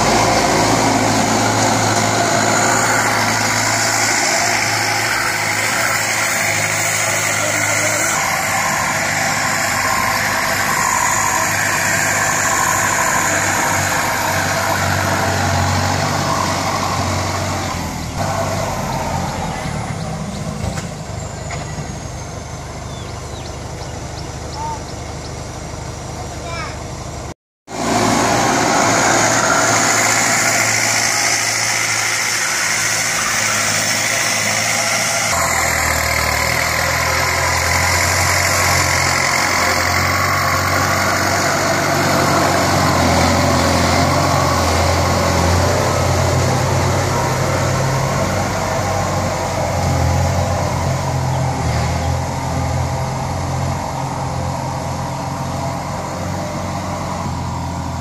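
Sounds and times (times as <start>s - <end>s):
tractor diesel engine running: 0.0s - 58.0s
blade pushing dirt: 27.8s - 46.5s.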